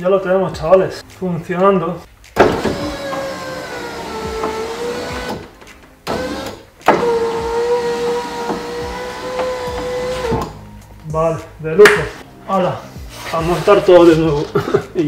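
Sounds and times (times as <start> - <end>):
electric window motor whine: 2.5 - 5.5, 6.1 - 10.6.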